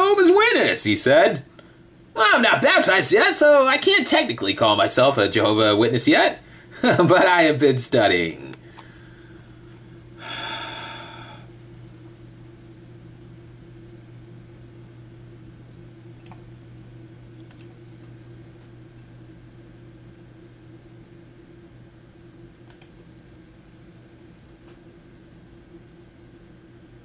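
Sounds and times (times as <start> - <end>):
low electrical hum: 0.0 - 27.0
short breath: 10.2 - 11.5
computer mouse clicks: 16.2 - 16.5, 17.4 - 17.8, 22.6 - 23.0.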